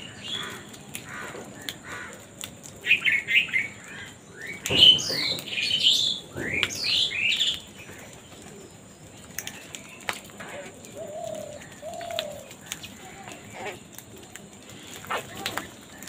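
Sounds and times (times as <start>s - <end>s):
crows calling: 0.0s - 4.2s, 10.4s - 16.0s
birds pecking and scuffling: 0.0s - 16.0s.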